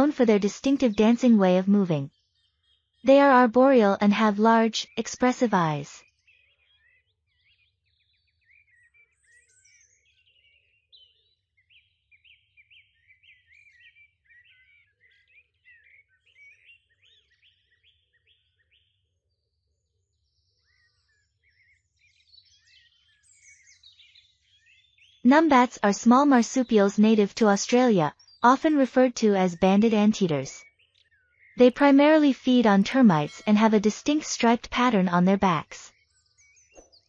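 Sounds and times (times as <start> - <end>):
faint bird chirps: 4.6 - 25.8.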